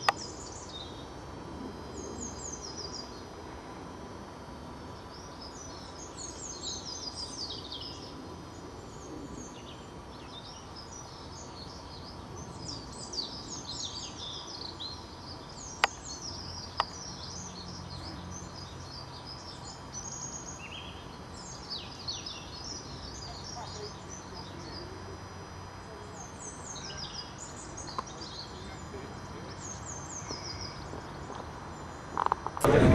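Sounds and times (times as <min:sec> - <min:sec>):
birds singing: 0:00.0 - 0:32.9
low engine hum: 0:27.4 - 0:32.9.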